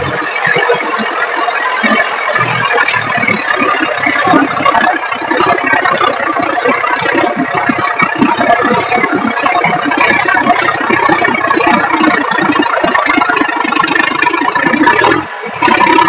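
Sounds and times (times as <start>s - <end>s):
tractor diesel engine running: 6.9s - 16.0s.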